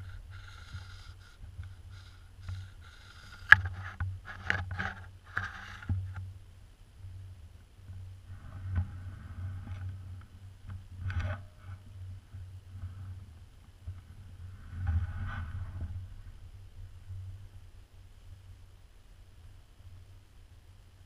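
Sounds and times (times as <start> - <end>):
wind rumble: 5.9 - 21.0
microphone handling noise: 7.9 - 17.7.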